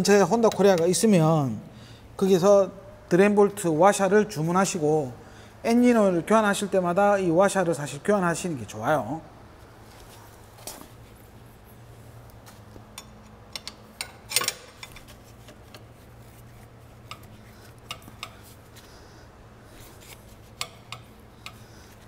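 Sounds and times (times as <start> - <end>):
steady low hum: 0.0 - 22.0
metal tool clicking on bolt: 13.0 - 15.9, 17.1 - 18.5, 20.6 - 21.6.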